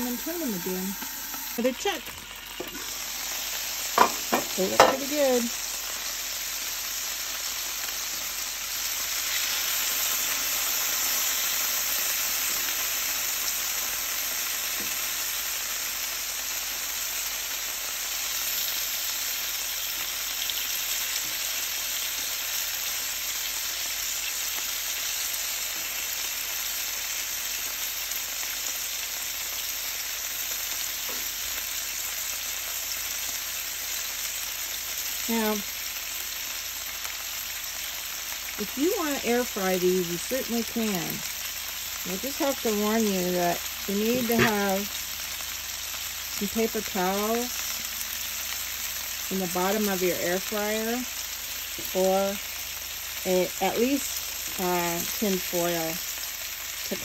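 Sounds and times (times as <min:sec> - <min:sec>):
bacon sizzling on a griddle: 0:00.0 - 0:57.0.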